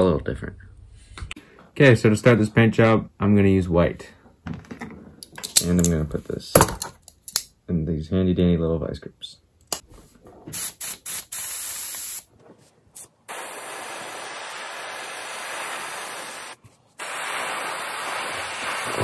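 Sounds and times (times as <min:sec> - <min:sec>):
airbrush spraying hiss: 0:10.6 - 0:12.3, 0:13.0 - 0:19.0.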